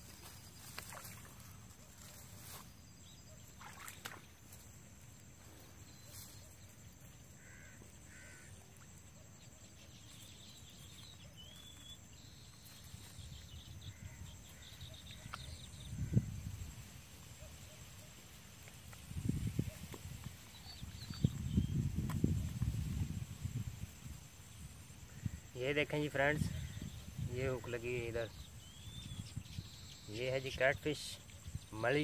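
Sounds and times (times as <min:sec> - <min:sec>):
faint bird calls: 0:05.8 - 0:16.4.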